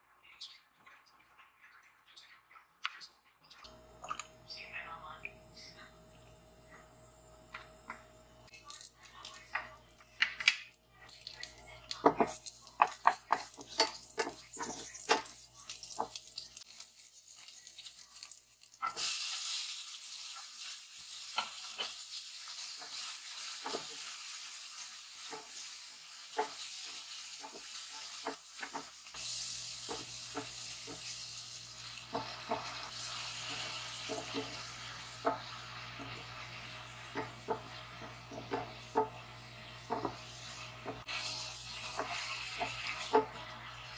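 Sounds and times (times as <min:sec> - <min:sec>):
food sizzling in a hot pan: 0:11.0 - 0:43.9.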